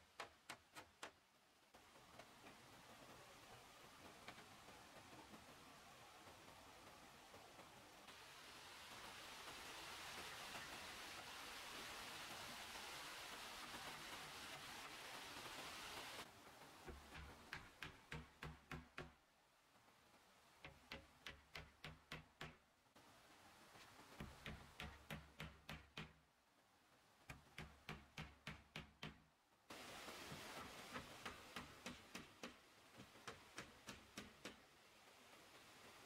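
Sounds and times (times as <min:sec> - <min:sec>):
faint rapid hammering: 0:16.8 - 0:19.3, 0:20.6 - 0:22.9, 0:24.1 - 0:26.3, 0:27.3 - 0:29.4.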